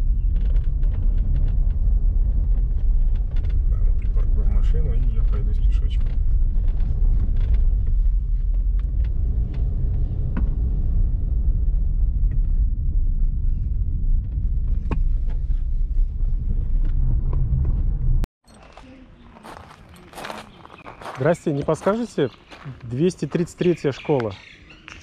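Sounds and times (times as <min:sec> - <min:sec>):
car driving rumble from inside: 0:00.0 - 0:18.3.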